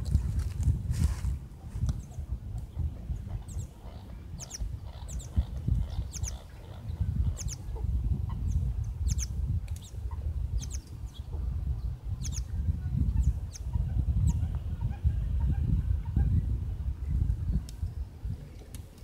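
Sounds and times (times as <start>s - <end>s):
wind rumble on microphone: 0.0s - 19.0s
small birds chirping: 1.8s - 16.4s.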